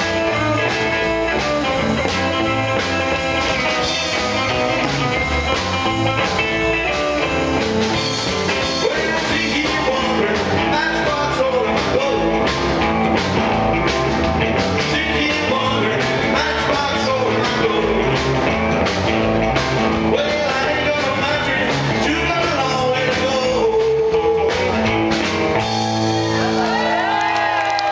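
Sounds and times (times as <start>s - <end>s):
drum kit: 0.0s - 27.9s
electric guitars: 0.0s - 27.9s
man singing: 8.5s - 12.8s, 14.7s - 18.5s, 20.0s - 25.0s.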